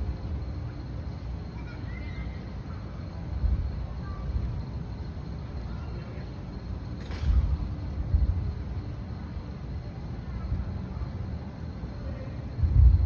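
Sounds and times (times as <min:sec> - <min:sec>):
wind rumbling on microphone: 0:03.3 - 0:05.0, 0:07.0 - 0:11.4, 0:12.4 - 0:13.0.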